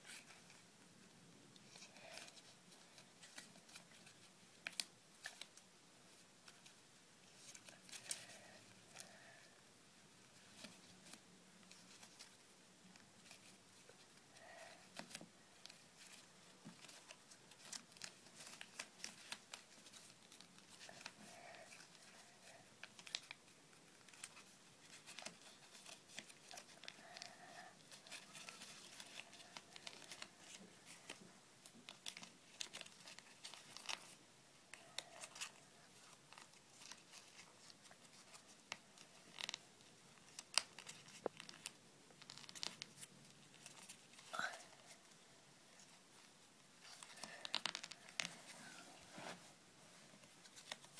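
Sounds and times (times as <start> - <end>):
small paper clicks: 1.6 - 5.6, 14.3 - 39.6, 40.2 - 44.9, 46.8 - 48.4, 50.4 - 50.9
paper rustling and crinkling: 1.6 - 9.5, 13.0 - 39.6, 40.2 - 50.9.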